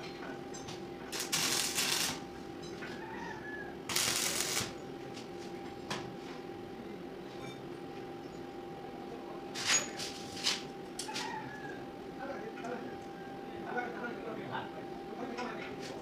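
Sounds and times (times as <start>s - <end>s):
steady hum: 0.0s - 2.7s, 3.6s - 9.5s
arc welding crackle and sizzle: 1.0s - 2.5s, 3.9s - 4.8s.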